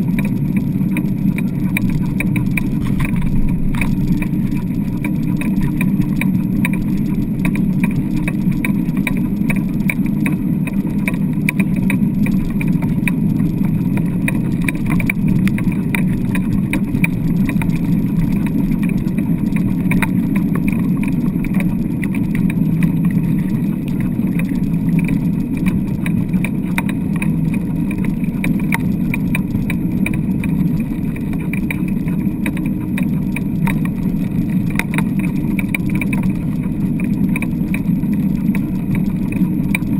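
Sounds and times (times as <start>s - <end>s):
rig rattles and clicks: 0.0s - 39.9s
rig wheels rumbling on sand: 0.0s - 39.9s.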